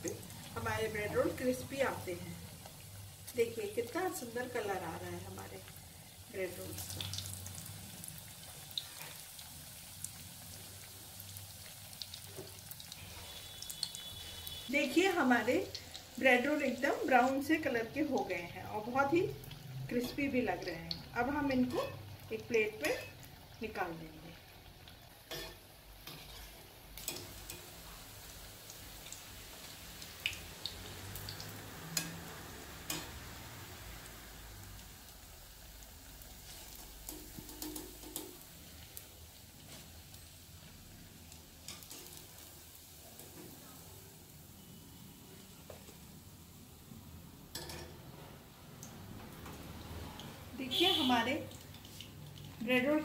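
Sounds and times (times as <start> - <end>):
oil sizzling while deep-frying: 0.0 - 53.0
small crackles and pops: 28.7 - 32.1.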